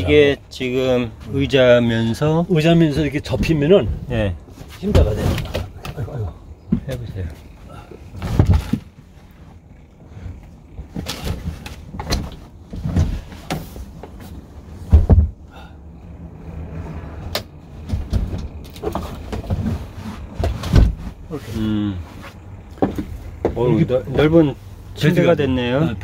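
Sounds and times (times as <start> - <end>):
seat frame clunking and thumping: 2.6 - 15.7, 16.9 - 21.4, 22.2 - 24.5.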